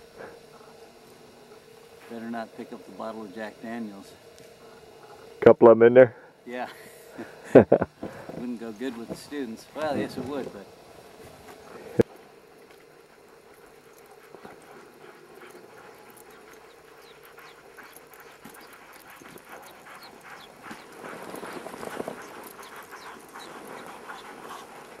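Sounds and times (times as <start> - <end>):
sled clicks and squeaks: 13.5 - 25.0.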